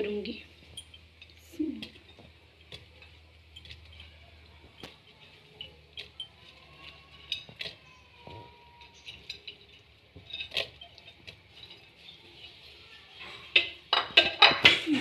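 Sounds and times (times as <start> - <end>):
cookware clinks and taps: 13.2 - 15.0.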